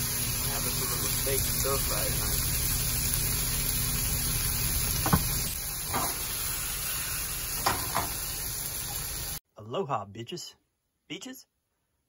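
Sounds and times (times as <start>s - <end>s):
steak sizzling in frying pan: 0.0s - 9.4s.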